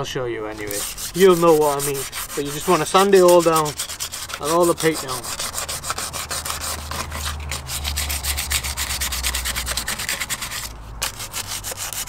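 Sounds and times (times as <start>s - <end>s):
sandpaper scratching on metal: 0.5s - 12.0s.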